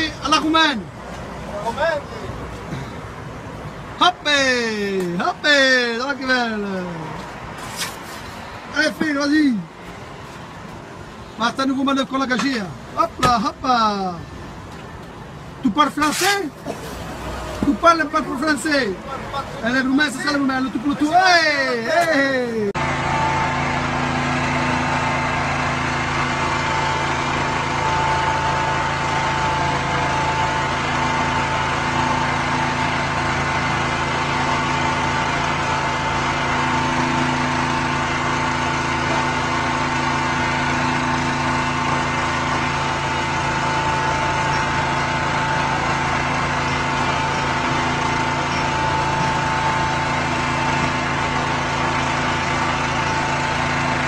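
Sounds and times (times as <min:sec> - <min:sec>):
small engine running: 0:22.8 - 0:54.0.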